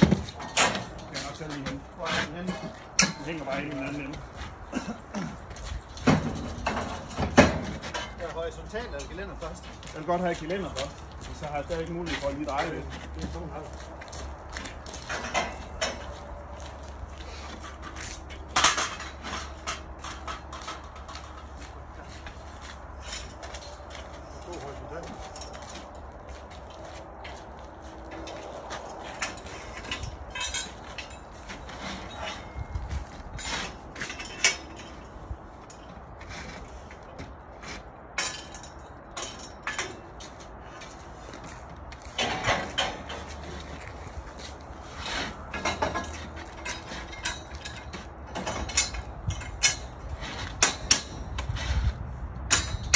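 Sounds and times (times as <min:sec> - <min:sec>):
metal scaffolding clanking: 0:00.0 - 0:52.9.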